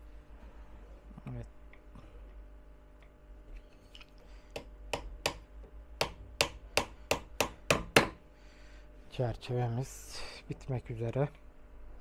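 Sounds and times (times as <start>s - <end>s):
hammer striking nail into wood: 4.6s - 8.2s.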